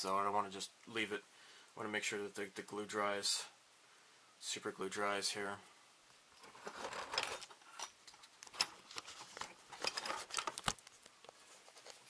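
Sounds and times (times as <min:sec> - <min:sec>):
handling rustle with light clicks: 0:06.4 - 0:12.0.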